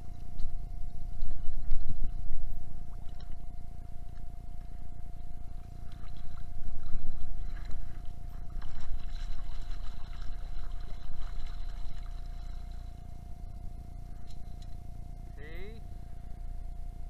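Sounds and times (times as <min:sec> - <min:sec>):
muffled water sloshing: 0:00.0 - 0:17.0
steady tone: 0:11.8 - 0:17.0.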